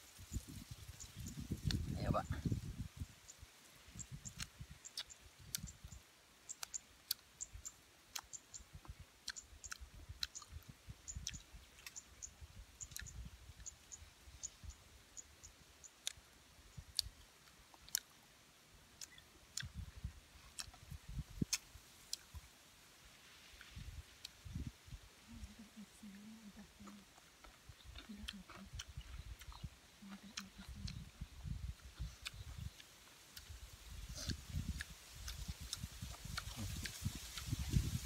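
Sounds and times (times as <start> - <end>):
chewing: 4.2 - 5.7, 6.5 - 7.3, 9.2 - 12.1, 12.8 - 13.7, 16.9 - 18.2, 19.0 - 19.8, 20.4 - 22.4, 25.4 - 38.0.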